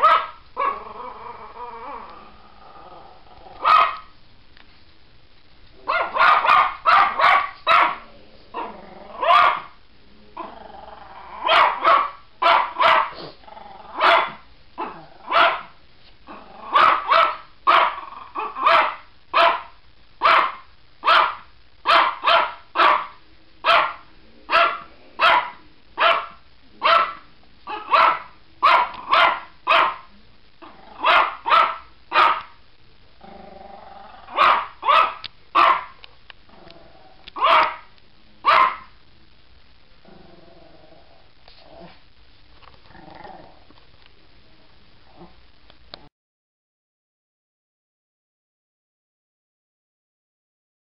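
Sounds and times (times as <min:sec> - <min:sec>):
small dog barking: 0:00.0 - 0:00.8, 0:03.6 - 0:04.1, 0:05.8 - 0:09.8, 0:11.4 - 0:13.3, 0:13.9 - 0:15.8, 0:16.7 - 0:32.6, 0:34.3 - 0:36.0, 0:37.4 - 0:39.0.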